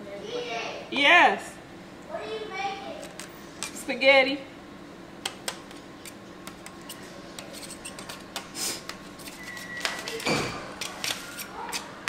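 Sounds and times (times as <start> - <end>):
knife scraping foil: 9.1 - 12.0.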